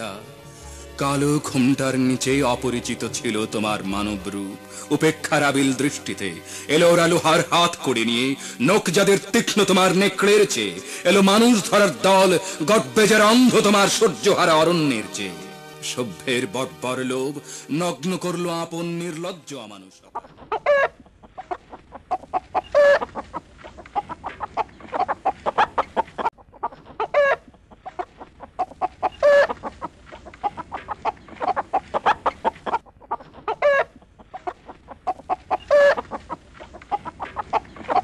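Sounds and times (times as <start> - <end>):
chickens clucking: 20.1 - 38.0
chicken drawn-out call: 20.2 - 38.0.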